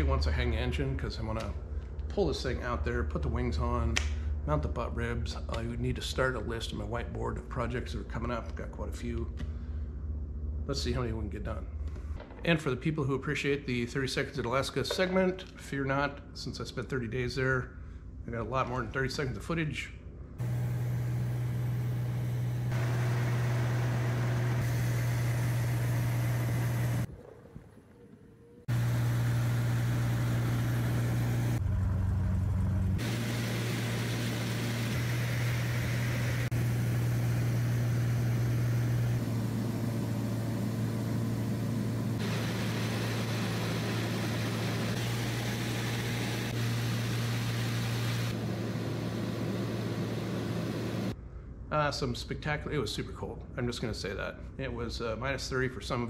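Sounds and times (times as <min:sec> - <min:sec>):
propeller aircraft drone in cabin: 0:20.4 - 0:51.2.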